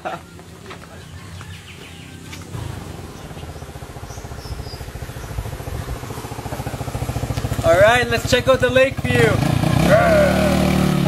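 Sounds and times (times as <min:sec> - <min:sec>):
motor scooter engine running: 0:02.4 - 0:11.0.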